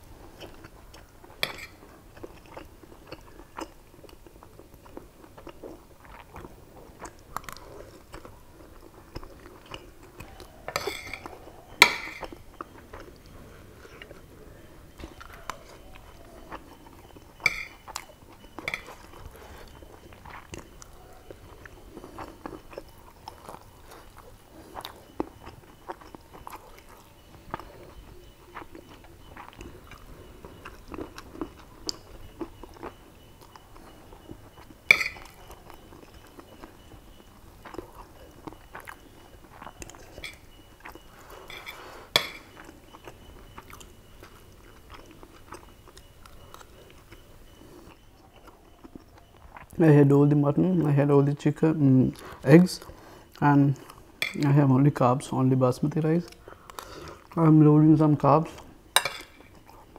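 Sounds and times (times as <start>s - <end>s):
close-up chewing: 0.0s - 59.9s
metal spoon clinking on plate: 1.4s - 1.8s, 10.7s - 12.4s, 17.4s - 17.9s, 18.7s - 19.1s, 34.9s - 35.4s, 40.2s - 40.4s, 41.5s - 42.6s, 59.0s - 59.6s.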